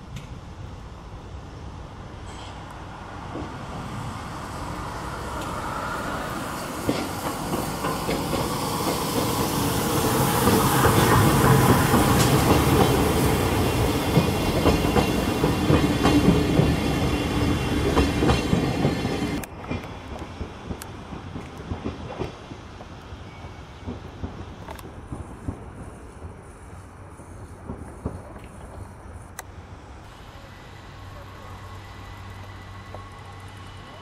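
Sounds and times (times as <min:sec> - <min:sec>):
steam locomotive passing: 0:00.0 - 0:34.0
train wheel clicks: 0:06.8 - 0:23.2, 0:23.8 - 0:26.7.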